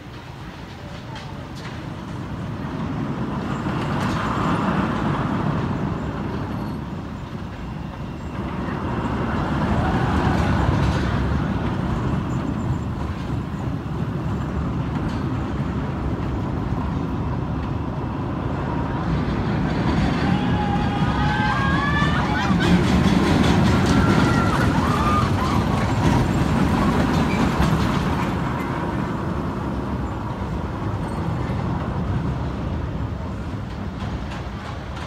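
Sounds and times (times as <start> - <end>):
roller coaster train rumbling: 0.0 - 35.0.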